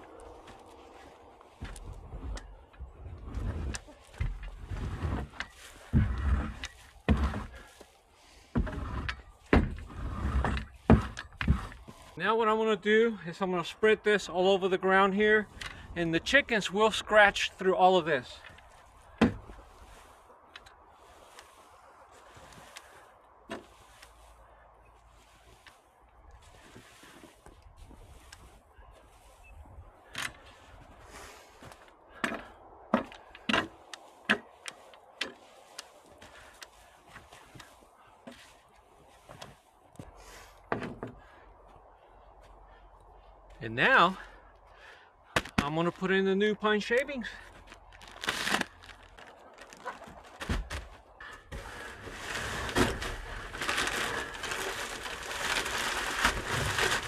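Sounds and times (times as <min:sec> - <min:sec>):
bag knocking and crinkling: 0:47.5 - 0:57.0
wood shavings spilling: 0:51.5 - 0:57.0.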